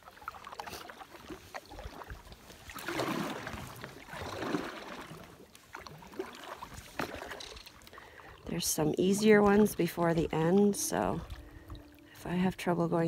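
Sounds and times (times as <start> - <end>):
paddle swishing through water: 0.0 - 12.9.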